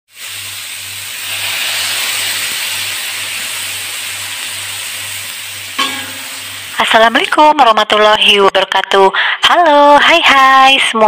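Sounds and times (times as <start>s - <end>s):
food sizzling in a wok: 0.1s - 8.4s.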